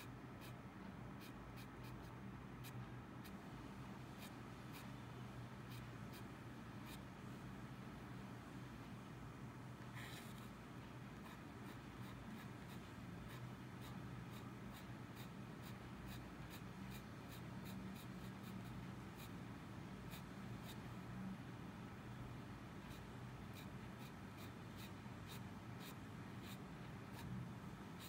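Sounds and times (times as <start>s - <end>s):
pen nib scratching on paper: 0.0s - 0.6s, 1.2s - 3.4s, 4.1s - 5.0s, 5.7s - 7.1s, 11.2s - 20.9s, 22.8s - 27.3s.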